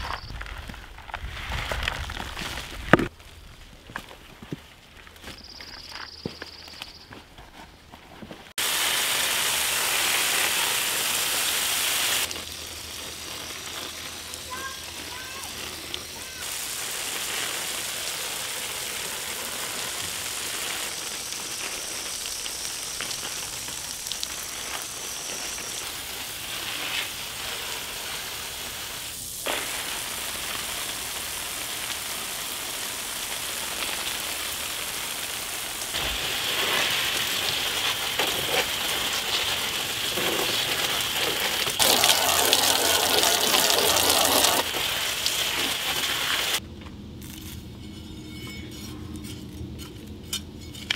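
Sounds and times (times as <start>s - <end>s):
hose spray pattering on leaves: 8.6s - 46.6s.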